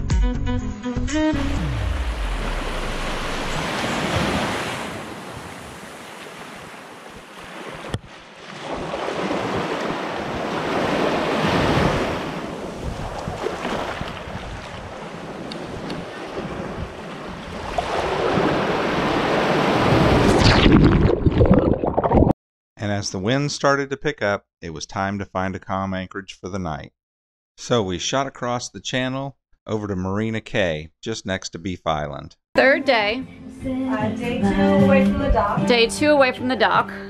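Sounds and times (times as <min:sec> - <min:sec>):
small sea waves washing: 0:02.0 - 0:21.6.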